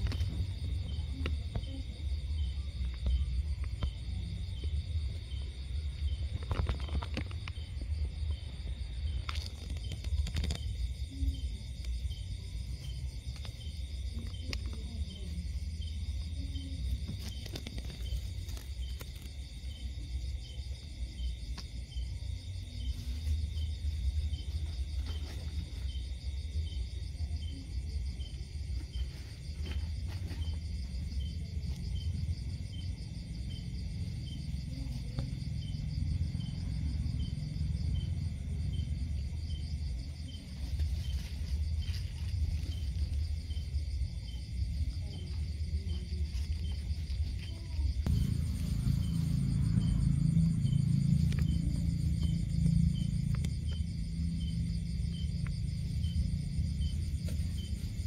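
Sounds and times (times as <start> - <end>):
high insect trill: 0.0 - 58.0
insect chirping: 0.0 - 58.0
low rumble: 41.3 - 58.0.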